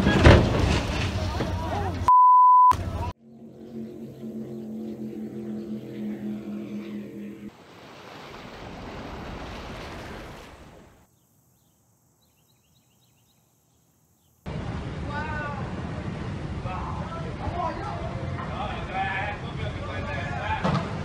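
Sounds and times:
boat engine hum: 2.8 - 9.5
water rushing and spraying: 6.5 - 11.1.

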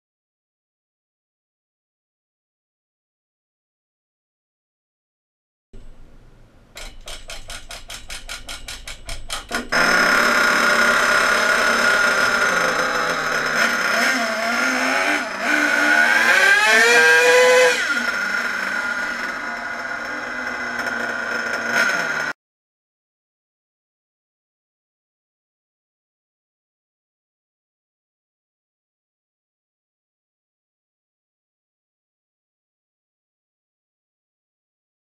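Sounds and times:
model engine revving: 9.4 - 22.4.

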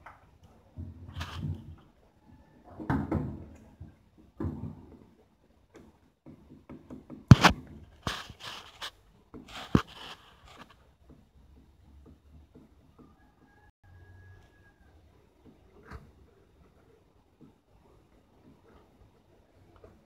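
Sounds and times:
rustling and scraping: 0.7 - 2.0, 7.3 - 11.0.

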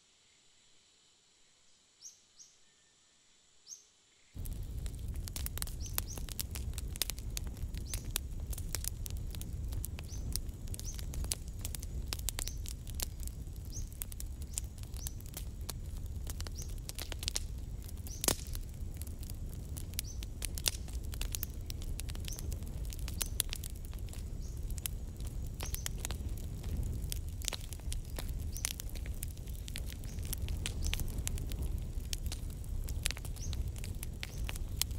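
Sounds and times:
low rumble: 4.4 - 34.9
wood fire crackling: 4.4 - 34.9
birds chirping: 5.7 - 6.6, 10.0 - 11.2.

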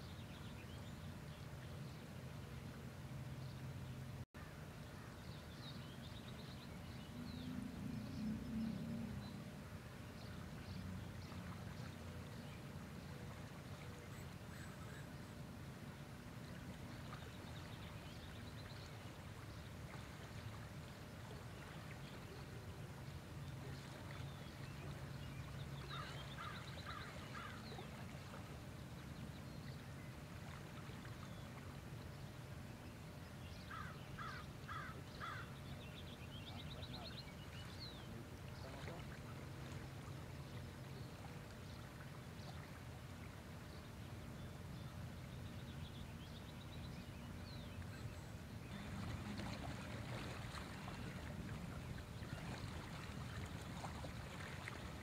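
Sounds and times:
bird calling: 25.8 - 28.0, 33.7 - 35.6.

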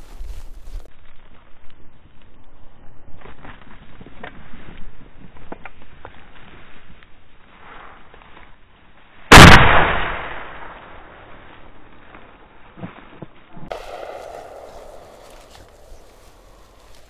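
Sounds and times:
shotgun shot: 9.3 - 11.0, 13.7 - 16.5.

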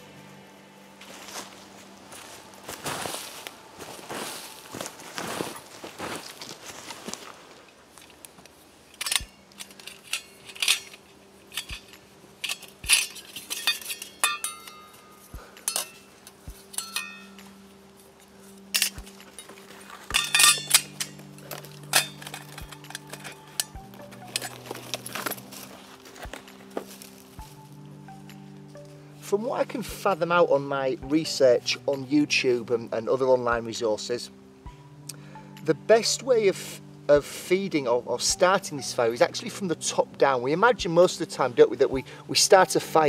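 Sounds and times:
steel stove parts clinking: 8.9 - 17.5, 18.7 - 25.6.

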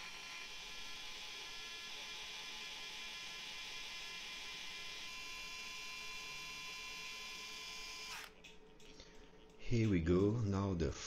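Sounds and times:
electric screwdriver whirring: 0.0 - 8.5.

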